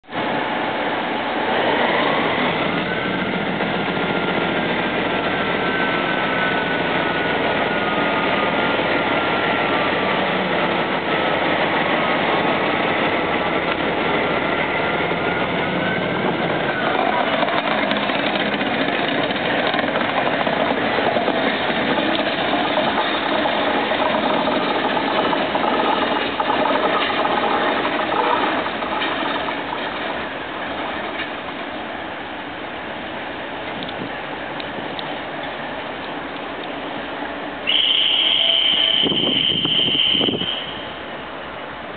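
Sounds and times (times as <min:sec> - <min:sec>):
diesel locomotive engine: 0:00.0 - 0:41.9
high wavering wheel squeal: 0:14.5 - 0:19.2, 0:37.6 - 0:41.1.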